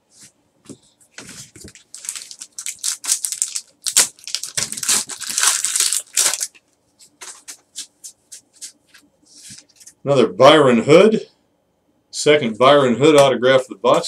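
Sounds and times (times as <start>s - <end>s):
foil wrapper crinkling and tearing: 1.6s - 6.6s.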